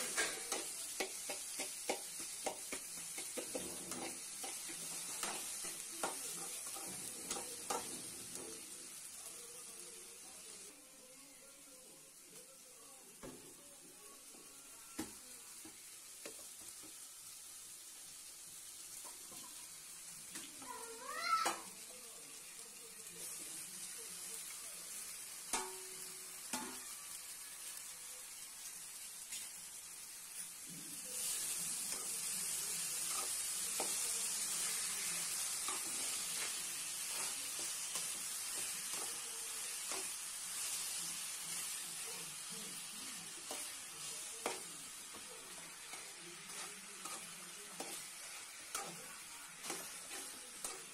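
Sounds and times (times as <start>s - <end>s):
spoon knocking against pan: 0.0s - 7.9s
chicken sizzling in pan: 0.0s - 50.9s.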